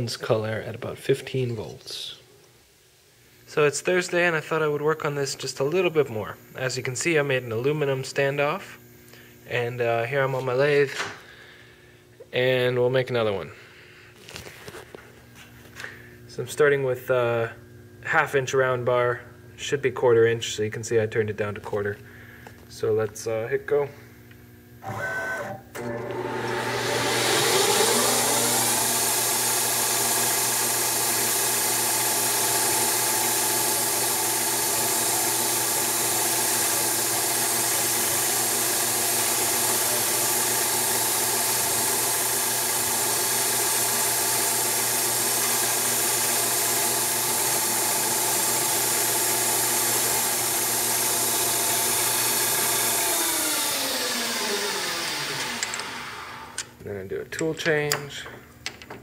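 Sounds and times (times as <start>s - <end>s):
lathe spindle whining: 24.8s - 56.6s.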